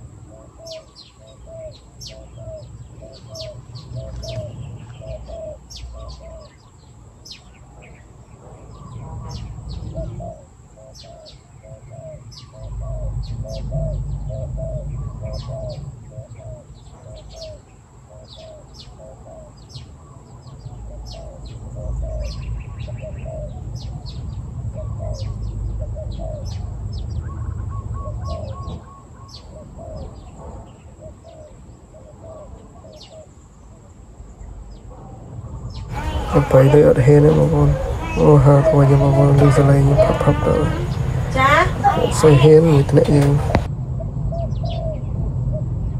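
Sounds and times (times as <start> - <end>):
doves cooing: 0.0 - 6.8, 7.4 - 33.8, 35.9 - 43.7
small birds chirping: 0.0 - 43.7, 44.3 - 45.9
low rumble: 21.6 - 28.4, 35.2 - 45.9.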